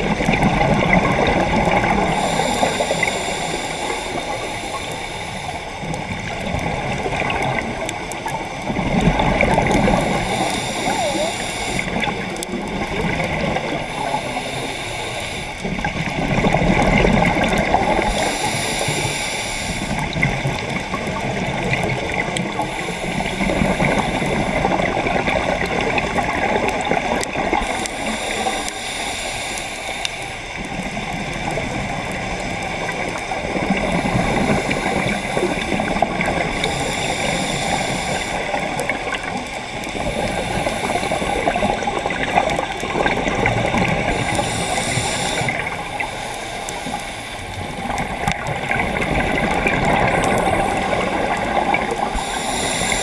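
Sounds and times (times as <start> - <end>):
regulator inhalation hiss: 1.8 - 5.8, 9.8 - 12.2, 13.6 - 15.8, 17.7 - 20.2, 22.6 - 24.7, 27.5 - 30.6, 33.8 - 38.6, 39.9 - 41.9, 43.6 - 47.8, 50.4 - 53.0
bubbling exhalations: 6.4 - 19.0.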